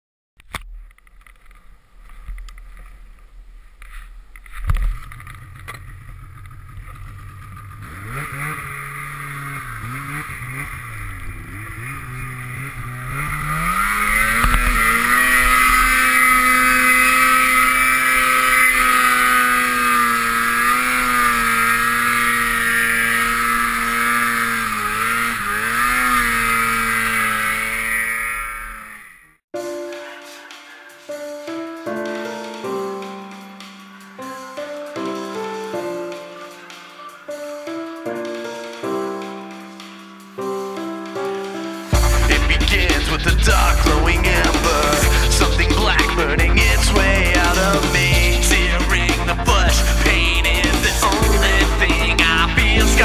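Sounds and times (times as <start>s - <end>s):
snowmobile engine revving: 4.5s - 29.4s, 41.9s - 53.0s.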